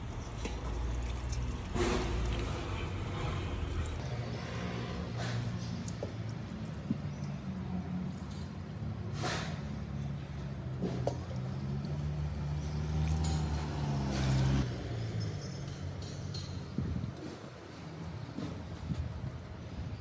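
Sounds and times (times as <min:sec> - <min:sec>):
water sloshing in a steel bowl: 0:00.1 - 0:14.6.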